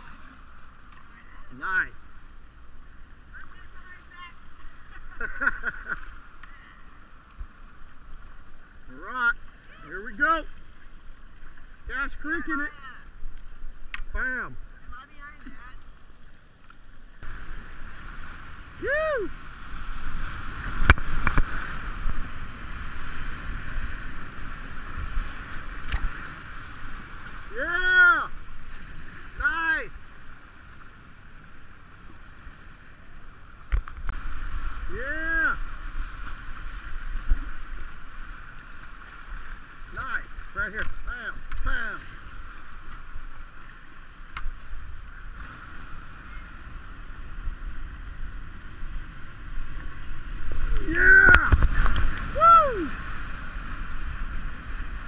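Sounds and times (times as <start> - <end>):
whitewater rushing: 17.2 - 55.0
wind buffeting microphone: 44.6 - 55.0.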